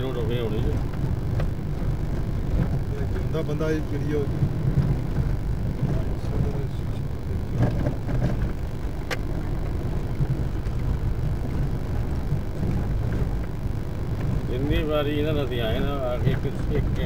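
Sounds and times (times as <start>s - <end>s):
vehicle rumbling: 0.0s - 17.0s.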